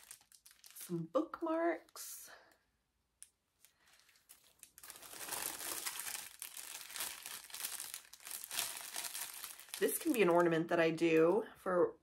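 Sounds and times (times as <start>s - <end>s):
packaging crinkling: 0.0s - 0.9s, 3.2s - 10.6s.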